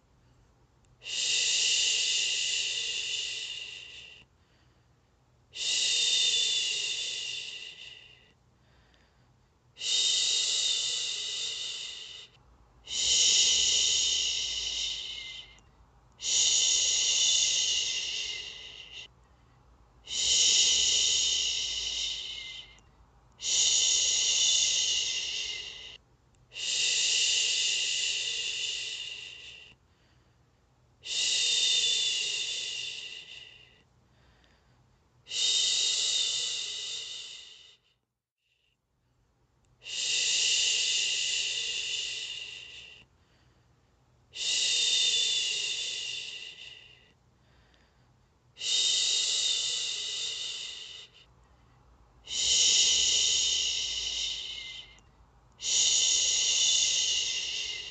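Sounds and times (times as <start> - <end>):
woman shushing: 16.2 - 19.1, 20.1 - 22.8, 23.4 - 26.0, 52.3 - 55.0, 55.6 - 57.9.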